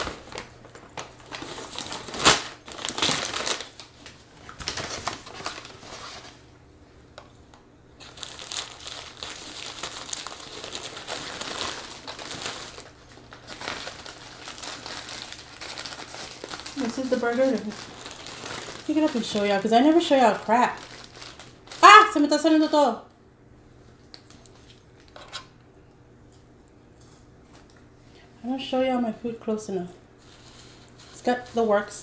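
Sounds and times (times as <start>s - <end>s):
paper wrappers crinkling: 0.0s - 6.5s, 8.0s - 22.4s, 30.2s - 31.7s.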